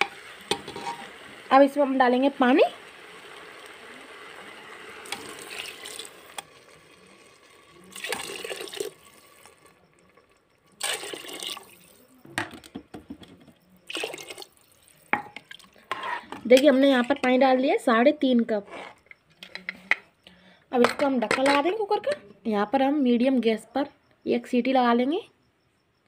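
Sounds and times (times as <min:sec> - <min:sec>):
water pouring into pot: 0:00.0 - 0:12.2, 0:13.8 - 0:16.0.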